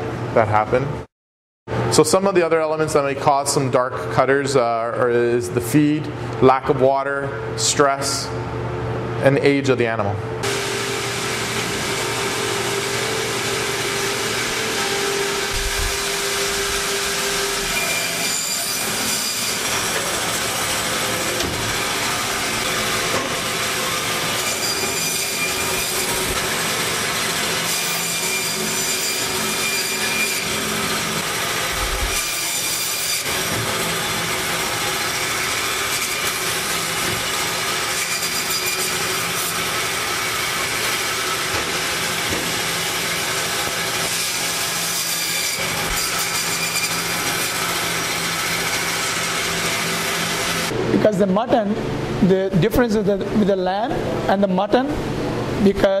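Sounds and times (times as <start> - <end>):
machine noise with held tones: 10.2 - 51.0.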